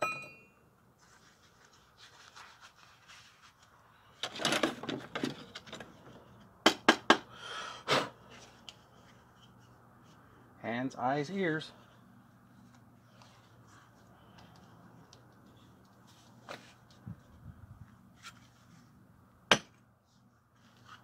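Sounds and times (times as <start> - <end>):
short metallic ring: 0.0 - 0.7
rustling and scuffing: 15.4 - 19.0.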